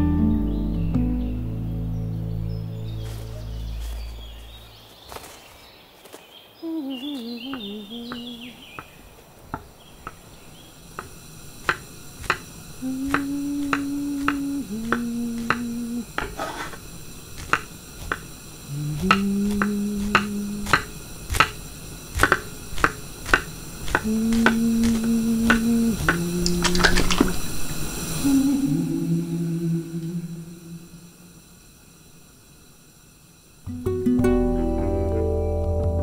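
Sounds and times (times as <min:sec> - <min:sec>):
held low music notes: 0:00.0 - 0:04.7, 0:33.7 - 0:36.0
sharp clicks and taps: 0:11.0 - 0:16.4, 0:17.4 - 0:18.3, 0:19.0 - 0:21.6, 0:22.2 - 0:27.3.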